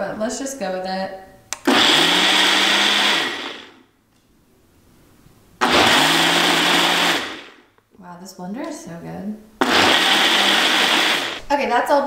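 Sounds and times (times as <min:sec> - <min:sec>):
blender running: 0:01.6 - 0:03.8, 0:05.6 - 0:07.7, 0:09.6 - 0:11.5.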